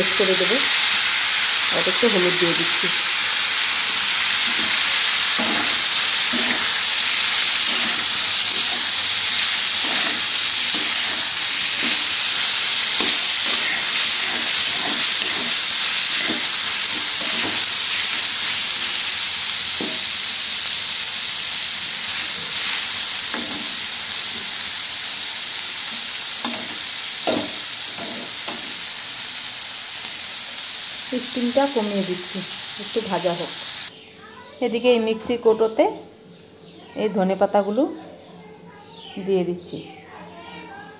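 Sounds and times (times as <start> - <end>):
food sizzling in hot oil: 0.0 - 33.9
spatula scraping a pan: 4.4 - 18.9.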